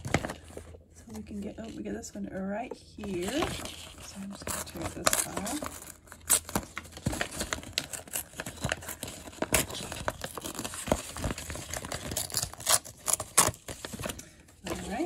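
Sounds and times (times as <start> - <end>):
paper tearing and crinkling: 3.2 - 15.0.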